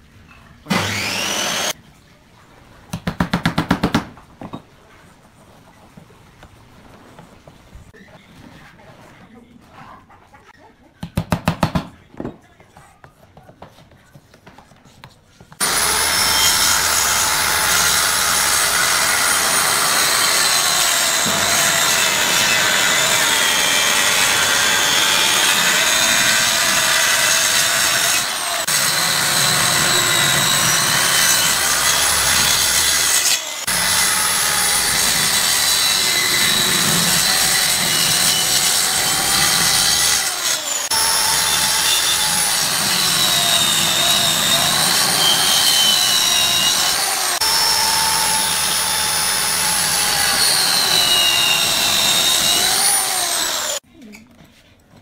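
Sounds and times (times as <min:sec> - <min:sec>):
circular saw cutting wood: 0:00.7 - 0:01.8, 0:15.6 - 0:53.8.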